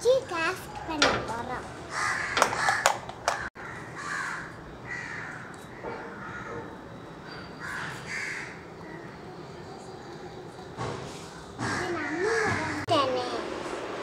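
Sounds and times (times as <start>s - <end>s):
crows cawing: 1.9s - 6.7s, 7.6s - 8.6s, 11.3s - 12.8s.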